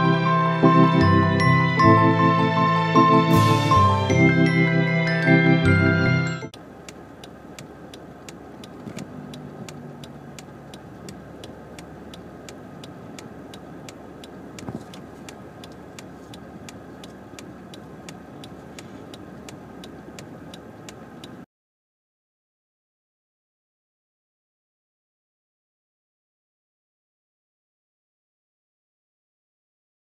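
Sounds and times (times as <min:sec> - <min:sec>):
car idling: 0:03.0 - 0:21.4
turn signal ticking: 0:06.5 - 0:21.5.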